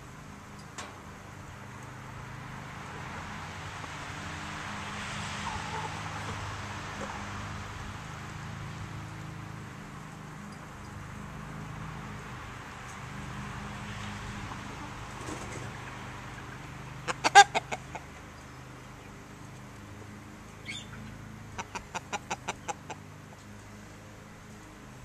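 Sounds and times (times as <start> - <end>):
chickens clucking: 5.2 - 7.6, 14.5 - 18.4, 20.6 - 23.5.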